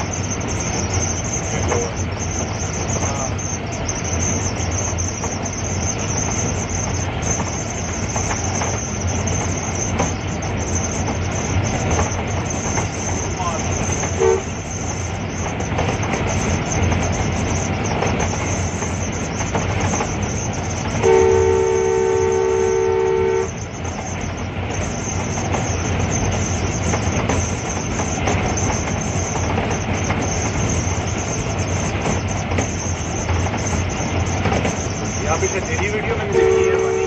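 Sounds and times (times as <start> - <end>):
locomotive engine and rail noise: 0.0 - 37.0
two-note locomotive horn: 14.2 - 14.6, 21.0 - 23.6, 36.2 - 37.0.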